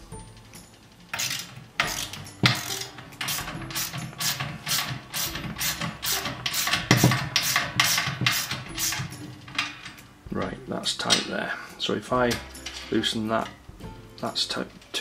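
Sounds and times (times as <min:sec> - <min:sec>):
socket ratchet clicking: 0:01.1 - 0:10.1.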